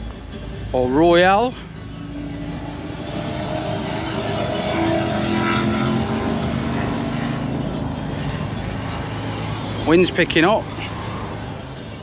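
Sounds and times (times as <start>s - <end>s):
engine drone with held tones: 0.0s - 12.0s
rushing background noise: 0.0s - 12.0s.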